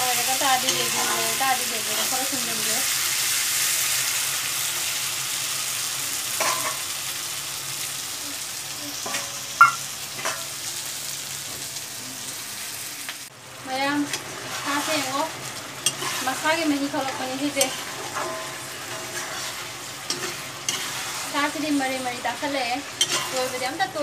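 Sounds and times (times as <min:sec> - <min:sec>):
curry sizzling in a pan: 0:00.0 - 0:24.0
sharp clink: 0:09.6 - 0:09.8
spatula scraping a pan: 0:15.8 - 0:21.6, 0:22.8 - 0:23.7.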